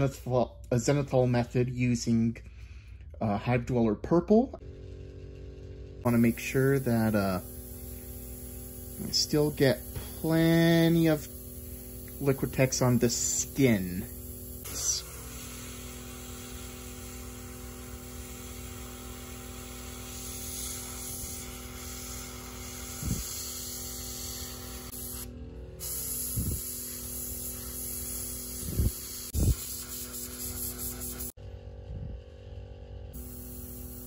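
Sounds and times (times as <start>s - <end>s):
steady hum: 4.6s - 34.0s
airbrush hissing: 6.1s - 31.4s, 33.2s - 34.0s.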